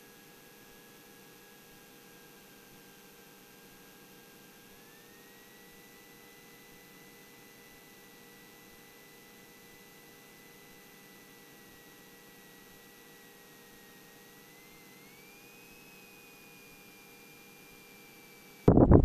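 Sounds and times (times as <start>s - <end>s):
high-pitched electrical whine: 16.6s - 19.0s
faint hum: 18.7s - 19.0s.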